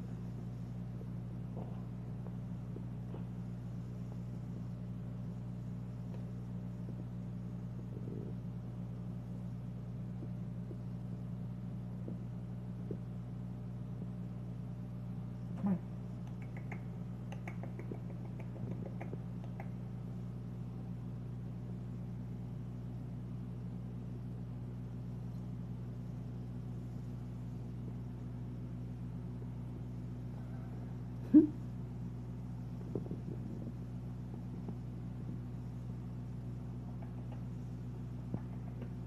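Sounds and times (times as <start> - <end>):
aquarium equipment humming: 0.0 - 39.0
faint clicks: 16.2 - 19.8.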